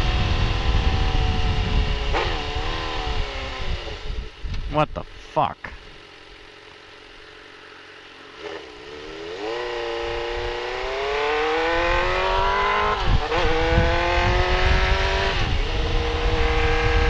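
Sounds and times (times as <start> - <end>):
motorcycle engine accelerating: 0.0 - 4.7, 5.9 - 17.0
wind rumble on microphone: 0.0 - 5.1, 10.0 - 17.0.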